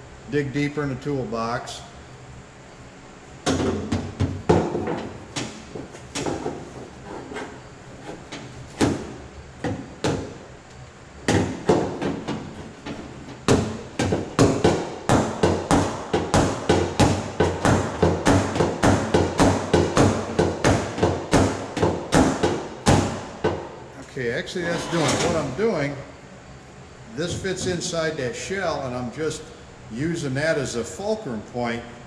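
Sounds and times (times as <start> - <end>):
hammer striking steel panel: 13.5 - 23.2.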